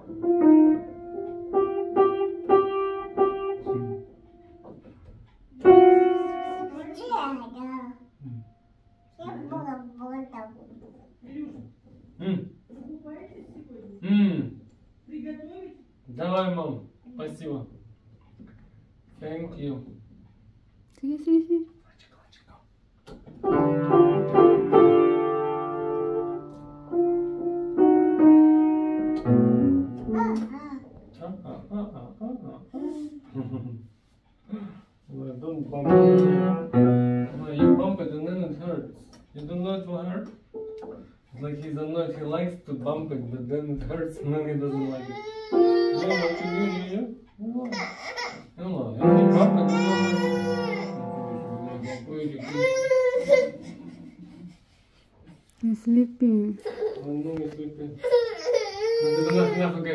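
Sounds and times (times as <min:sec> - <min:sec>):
piano-like keyboard notes: 0:00.0 - 0:04.6, 0:05.6 - 0:07.1, 0:23.4 - 0:30.5, 0:35.8 - 0:38.6, 0:45.6 - 0:46.9, 0:48.9 - 0:52.9.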